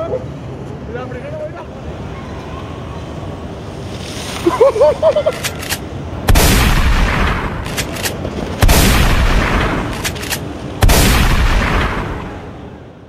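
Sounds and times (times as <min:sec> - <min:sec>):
sharp clicks: 0:05.3 - 0:05.8, 0:07.6 - 0:08.2, 0:09.8 - 0:10.5
heavy booming hits: 0:06.3 - 0:07.6.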